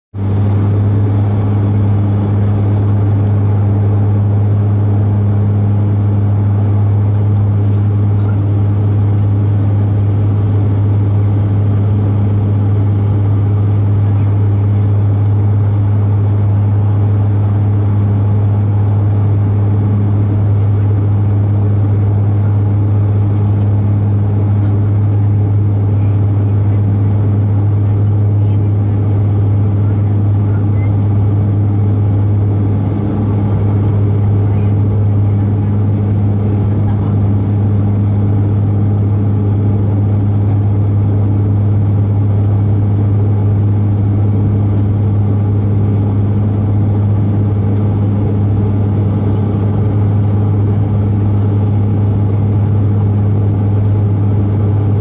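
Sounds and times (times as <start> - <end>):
engine and airflow rush: 0.1 - 55.0
propeller hum: 0.2 - 55.0.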